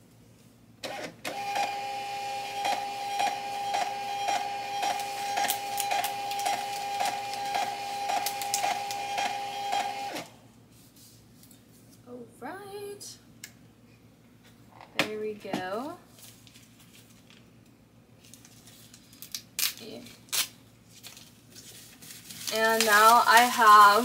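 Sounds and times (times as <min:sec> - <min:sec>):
label printer motor whine: 0:00.8 - 0:10.4.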